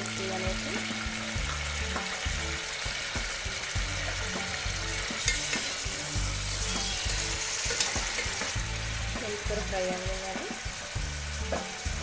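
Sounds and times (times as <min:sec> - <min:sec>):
leaves sizzling in hot oil: 0:00.0 - 0:12.0
steel ladle scraping and clinking: 0:05.0 - 0:05.9, 0:06.5 - 0:08.6.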